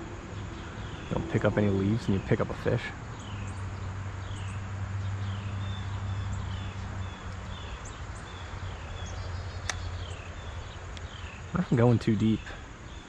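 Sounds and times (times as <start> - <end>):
steady low hum: 0.0 - 13.0
sharp click: 9.6 - 9.9.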